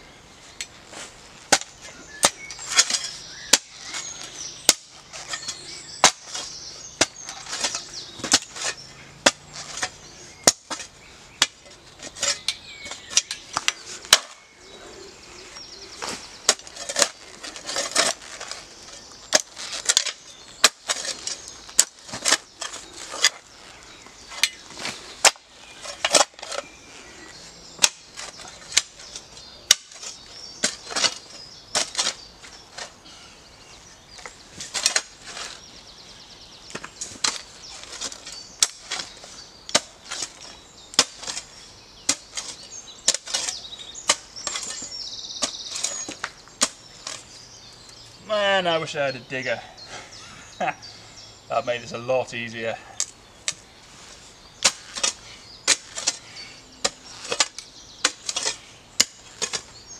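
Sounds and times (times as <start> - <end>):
metal spade striking stony soil: 1.5 - 14.5, 16.0 - 23.5, 24.3 - 26.7, 27.8 - 32.9, 34.2 - 35.6, 36.7 - 47.3, 54.6 - 59.8.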